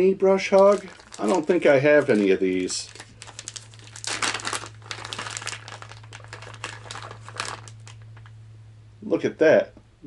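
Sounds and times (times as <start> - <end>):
plastic bag crinkling: 0.3 - 8.4.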